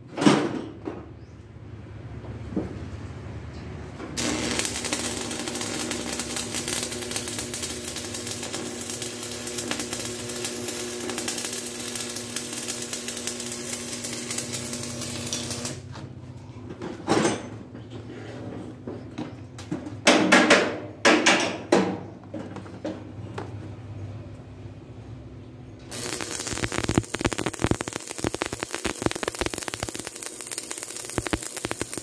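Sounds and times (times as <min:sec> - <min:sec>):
arc welding crackle: 0:04.2 - 0:15.9, 0:25.9 - 0:32.0.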